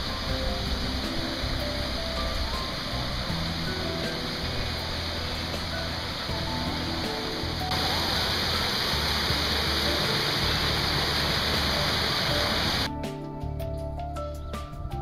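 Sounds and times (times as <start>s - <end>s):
waterfall splashing onto rocks: 0.0s - 12.9s
background music: 0.0s - 15.0s.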